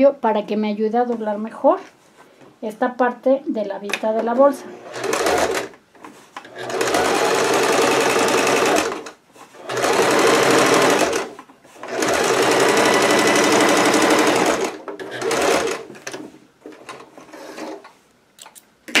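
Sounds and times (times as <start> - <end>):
sewing machine running: 4.8 - 5.7, 6.5 - 16.2.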